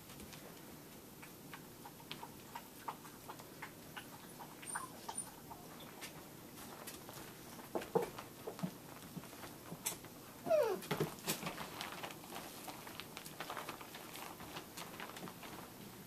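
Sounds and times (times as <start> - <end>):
puppies squeaking: 4.6 - 5.4, 10.5 - 10.9
paws tapping: 10.5 - 15.7.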